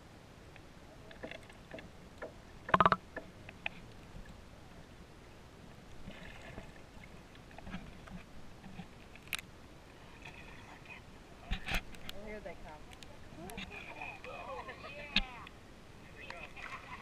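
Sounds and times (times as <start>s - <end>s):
faint clicks: 11.5s - 14.3s.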